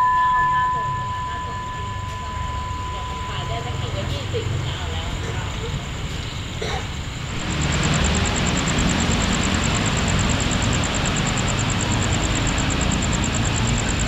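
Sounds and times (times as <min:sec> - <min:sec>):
high fast pulsing: 0:00.0 - 0:05.2, 0:07.2 - 0:14.0
diesel locomotive engine rumble: 0:00.0 - 0:14.0.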